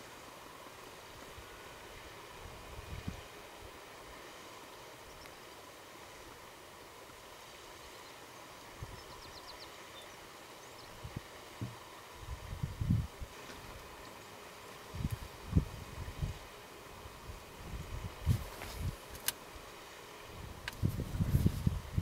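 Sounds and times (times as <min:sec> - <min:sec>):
steady outdoor hiss: 0:00.0 - 0:22.0
faint high ticks: 0:05.2 - 0:05.4.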